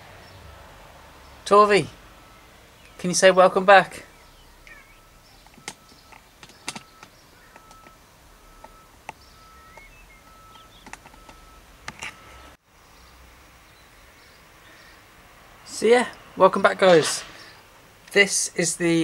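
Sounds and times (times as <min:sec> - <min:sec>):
faint bird chirps: 0:04.0 - 0:11.6
light clicks and ticks: 0:05.4 - 0:08.0.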